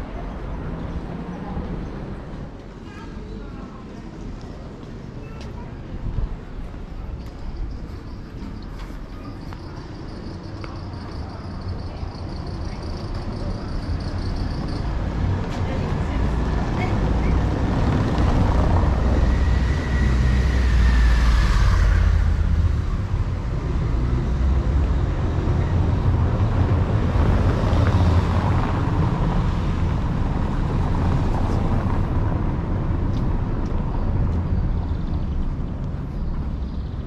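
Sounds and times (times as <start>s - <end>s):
car driving on cobblestones: 4.1s - 37.0s.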